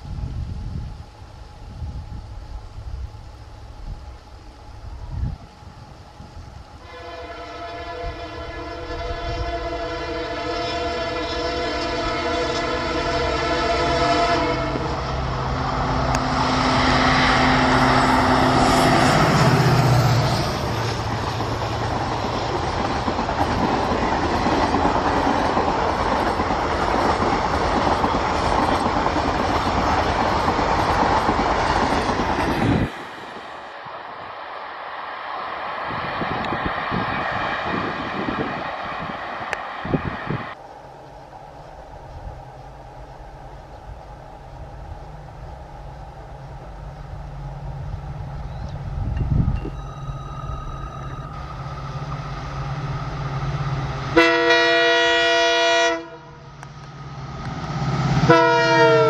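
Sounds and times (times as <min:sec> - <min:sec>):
locomotive engine drone: 0:00.0 - 0:59.0
train wheels and coaches rushing: 0:00.0 - 0:59.0
locomotive multi-tone horn: 0:06.8 - 0:15.5, 0:54.1 - 0:56.6, 0:58.2 - 0:59.0.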